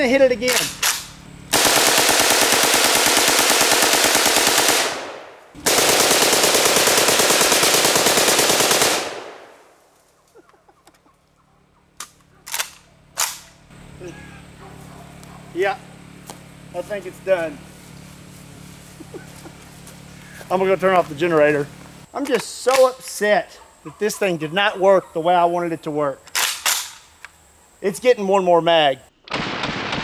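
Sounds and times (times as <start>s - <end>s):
sharp clicks: 0.4s - 1.2s, 12.0s - 13.6s
automatic gunfire bursts: 0.5s - 9.6s.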